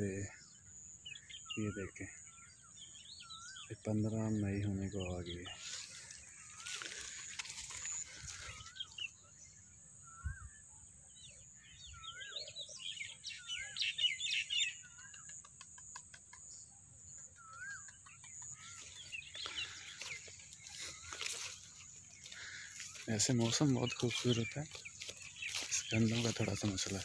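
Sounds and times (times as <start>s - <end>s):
birds chirping: 0.0s - 27.0s
bird ticking calls: 11.9s - 27.0s.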